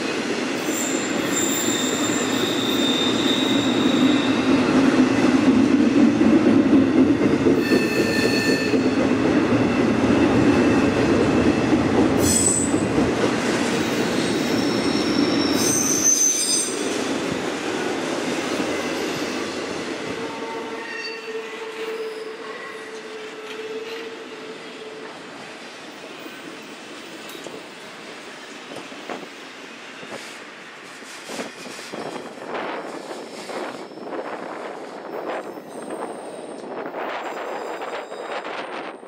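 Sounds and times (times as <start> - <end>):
train wheels rumbling on rails: 0.0 - 39.0
high-pitched wheel squeals: 0.6 - 4.4, 7.6 - 8.9, 14.2 - 16.8, 20.4 - 24.2.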